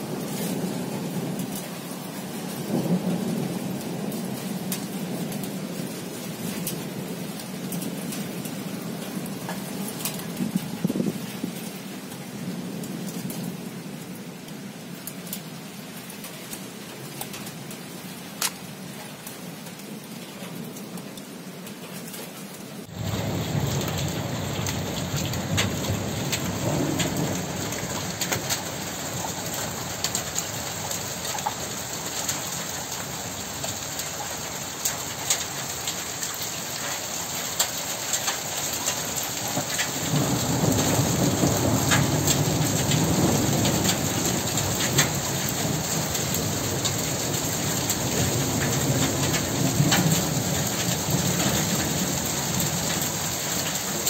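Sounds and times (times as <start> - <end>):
steady rain: 0.0 - 54.0
rumble of thunder: 22.9 - 31.9, 39.3 - 53.7.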